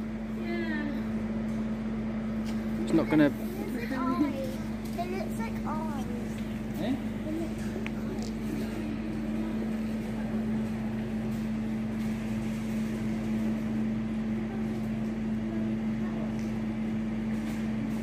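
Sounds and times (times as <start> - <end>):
steady mechanical hum: 0.0 - 18.0
weaker lower hum: 0.0 - 18.0.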